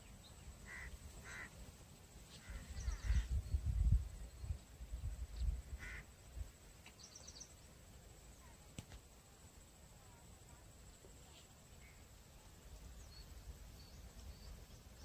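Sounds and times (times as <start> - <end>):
faint bird calls: 0.0 - 1.6, 2.3 - 3.6, 5.4 - 6.2
wind buffeting microphone: 2.6 - 6.5.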